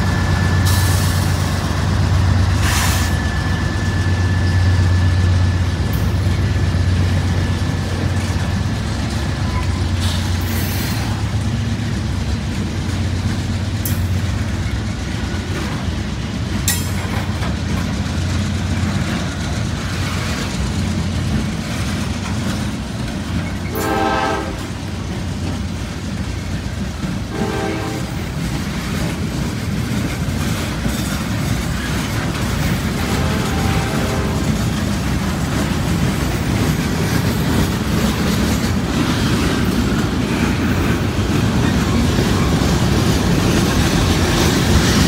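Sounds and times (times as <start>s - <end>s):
diesel locomotive engine: 0.0s - 45.0s
train wheels clattering: 0.0s - 45.0s
train horn: 23.7s - 24.9s, 27.3s - 28.4s, 32.8s - 34.7s.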